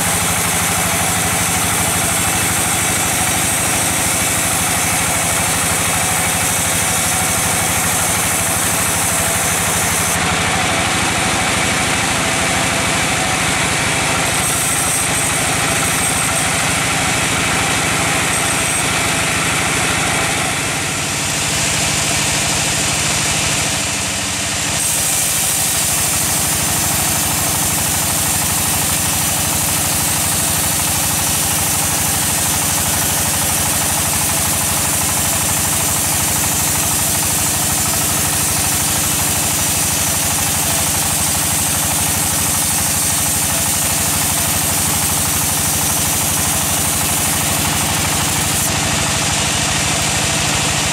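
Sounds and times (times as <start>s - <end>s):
band saw cutting log: 0.0s - 50.9s.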